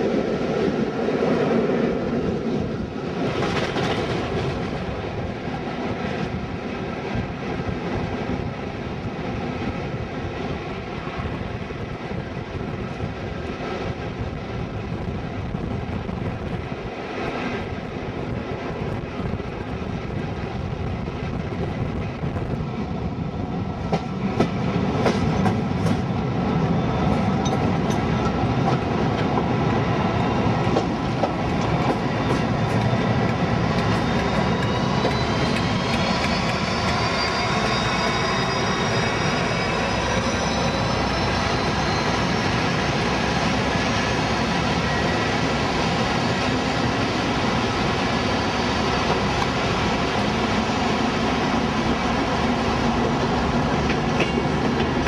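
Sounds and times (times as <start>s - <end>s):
train wheels rumbling on rails: 0.0s - 55.0s
clickety-clack over rail joints: 2.5s - 8.5s, 23.8s - 26.3s, 27.0s - 38.1s, 52.8s - 55.0s.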